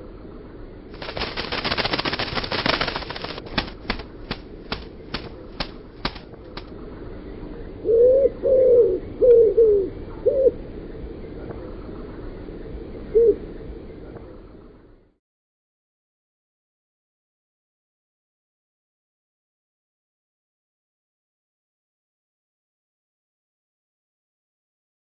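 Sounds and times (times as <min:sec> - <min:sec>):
dove wings flapping: 0:00.9 - 0:06.7
dove cooing: 0:07.8 - 0:10.6, 0:13.1 - 0:13.5.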